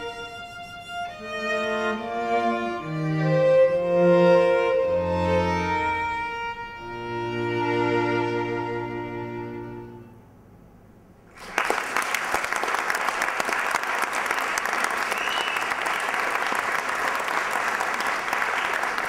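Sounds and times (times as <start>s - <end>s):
bowed string music: 0.0s - 10.2s
audience applause: 11.3s - 19.0s.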